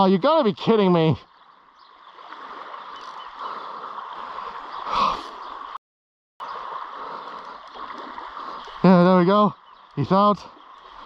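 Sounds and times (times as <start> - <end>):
waves lapping at shoreline: 0.1 - 5.8, 6.4 - 11.0.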